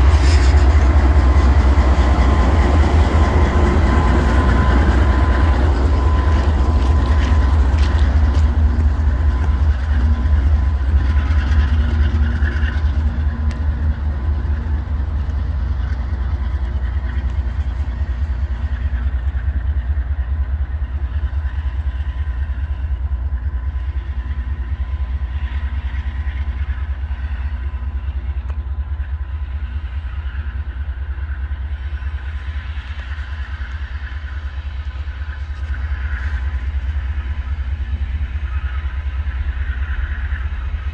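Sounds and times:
locomotive engine rumble: 0.0s - 40.9s.

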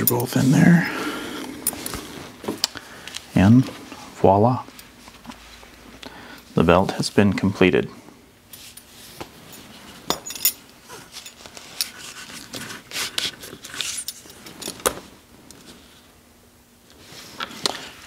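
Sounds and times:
belt buckle clinking: 9.5s - 10.6s.

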